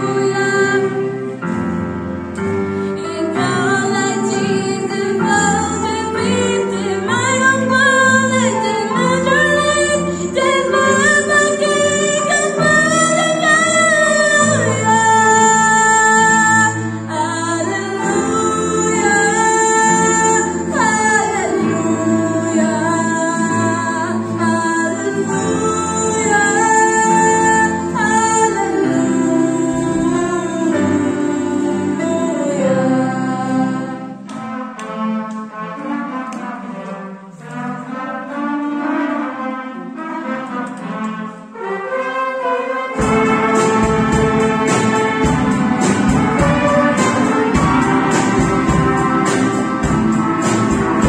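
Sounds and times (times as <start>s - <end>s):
musical accompaniment: 0.0s - 51.0s
girl singing into a microphone: 3.0s - 34.0s.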